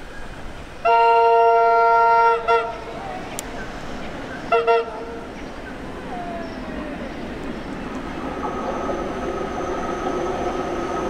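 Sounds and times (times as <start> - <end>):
train running noise: 0.0 - 11.0
train horn: 0.8 - 3.0, 4.5 - 5.3.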